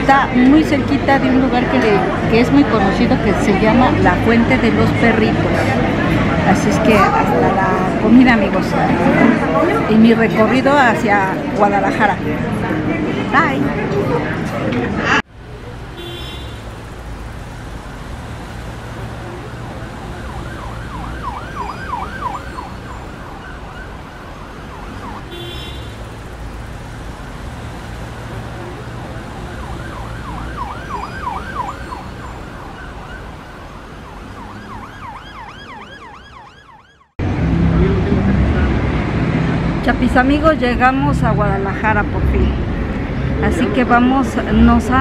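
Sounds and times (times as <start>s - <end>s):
street traffic rumble: 0.0s - 45.0s
electronic siren yelping: 18.5s - 26.5s, 28.3s - 37.1s.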